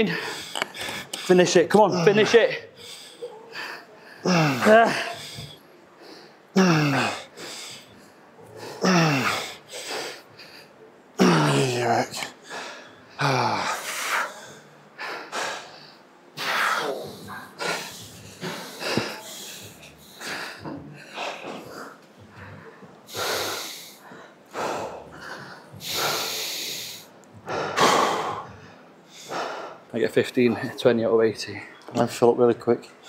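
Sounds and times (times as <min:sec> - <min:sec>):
man breathing hard: 0:00.0 - 0:01.4, 0:02.1 - 0:10.8, 0:12.4 - 0:29.9.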